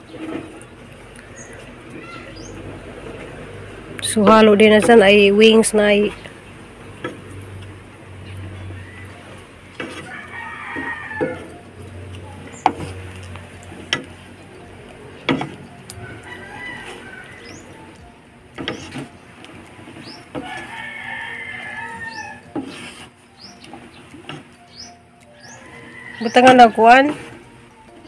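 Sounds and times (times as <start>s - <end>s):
small birds chirping: 0.0s - 2.7s, 17.0s - 18.1s, 22.1s - 27.0s
rooster crowing: 9.8s - 11.6s, 15.9s - 18.0s, 20.3s - 22.6s, 25.4s - 26.8s.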